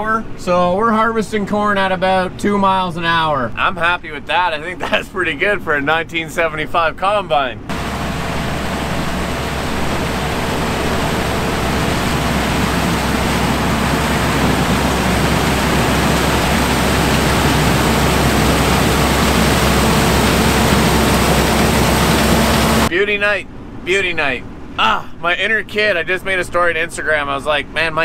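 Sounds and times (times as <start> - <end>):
harvest machinery rushing noise: 7.7 - 22.9
low engine hum: 7.7 - 22.9.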